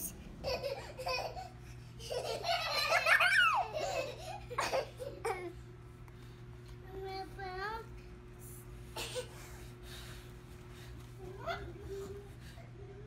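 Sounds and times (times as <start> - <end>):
toddler laughing: 0.4 - 5.6, 11.2 - 12.2.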